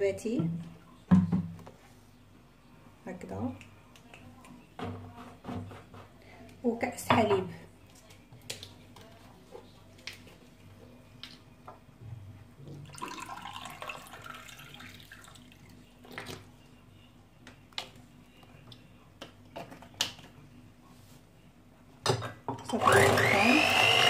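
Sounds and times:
milk pouring into glass: 12.8s - 15.8s.

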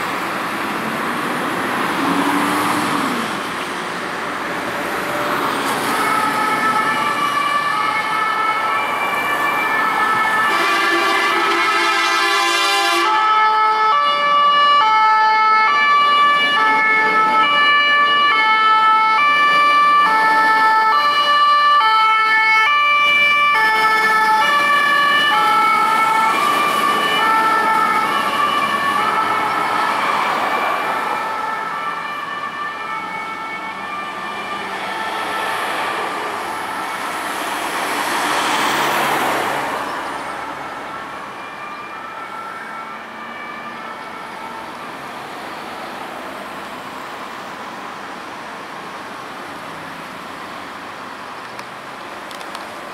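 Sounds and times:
traffic noise: 0.0s - 52.9s
fire engine two-tone siren: 4.7s - 48.1s
air horn: 10.4s - 13.3s.

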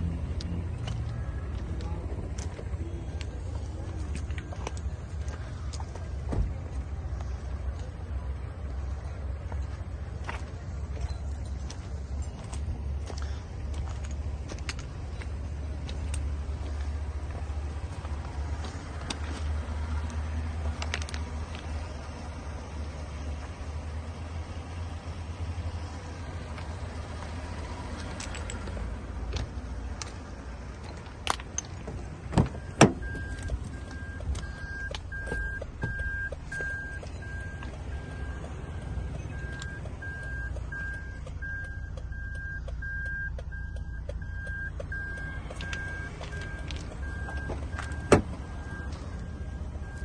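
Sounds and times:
electronic warning beep: 32.5s - 50.0s.

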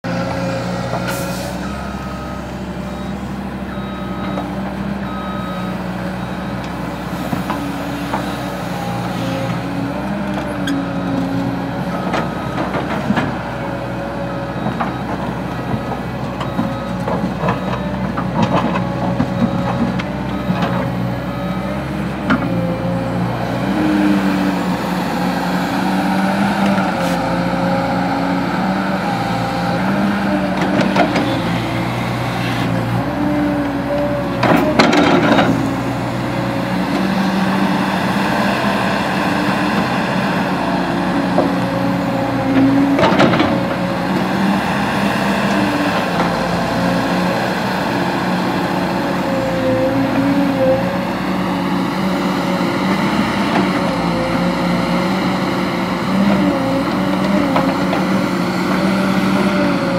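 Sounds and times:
excavator diesel engine running: 0.0s - 59.9s
reversing alarm beeping: 1.5s - 9.2s, 14.2s - 22.9s.

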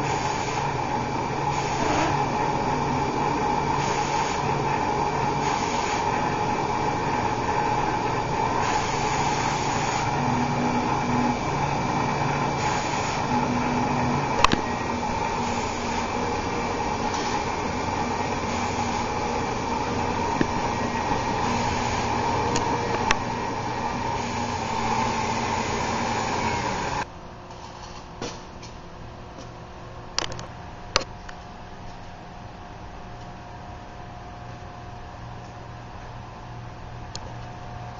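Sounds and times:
engraving machine hum and whine: 0.0s - 27.2s
low machine hum: 0.0s - 37.9s.

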